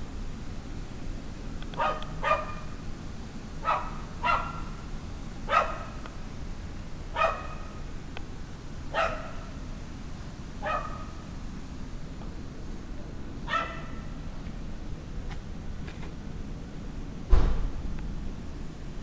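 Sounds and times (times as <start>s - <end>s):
dog barking: 1.8s - 2.8s, 3.6s - 4.8s, 5.4s - 6.0s, 7.1s - 7.8s, 8.9s - 9.6s, 10.6s - 11.2s, 13.4s - 14.1s.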